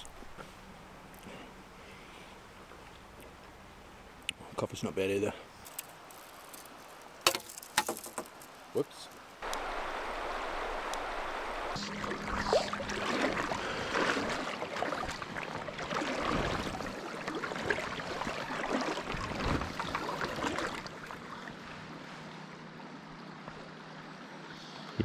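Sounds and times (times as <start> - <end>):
river water rushing and lapping: 0.0 - 25.0.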